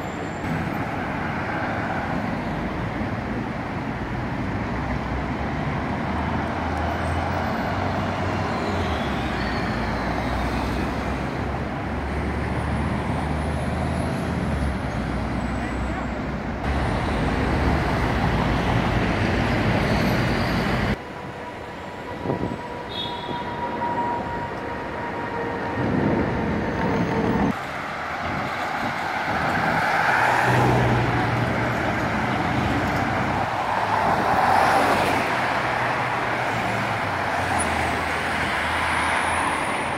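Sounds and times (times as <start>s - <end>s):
traffic driving past: 0.4s - 39.9s.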